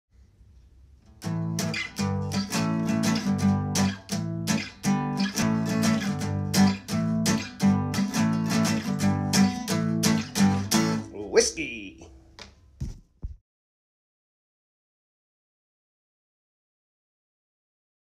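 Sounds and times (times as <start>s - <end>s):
acoustic guitar strumming: 1.1s - 12.0s.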